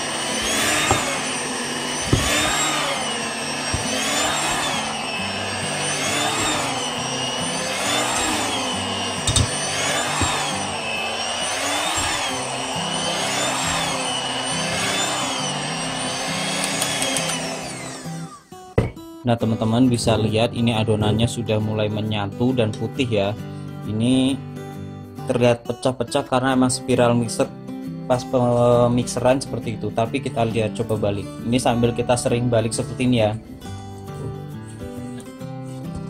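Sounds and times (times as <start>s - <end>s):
electric mixer motor whining: 0.0s - 19.0s
dough hooks knocking: 9.2s - 9.5s.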